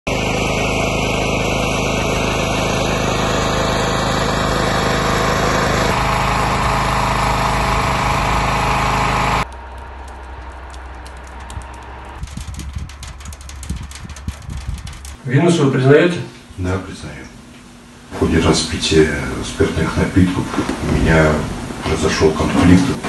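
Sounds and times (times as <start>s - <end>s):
small engine running: 0.1s - 15.2s.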